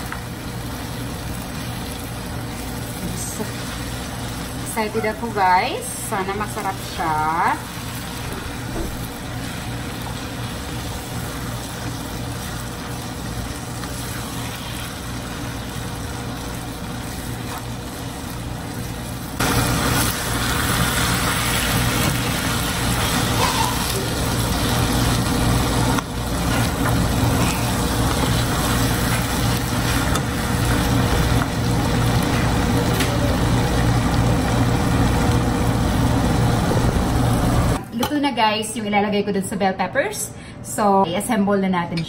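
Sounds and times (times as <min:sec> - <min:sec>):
food sizzling in skillet: 0:00.0 - 0:37.8
stirring in skillet: 0:09.3 - 0:32.7.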